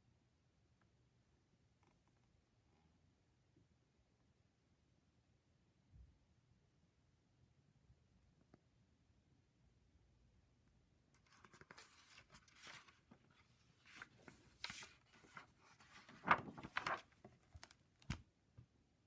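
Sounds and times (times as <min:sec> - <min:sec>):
book pages rustling: 0:11.2 - 0:18.2.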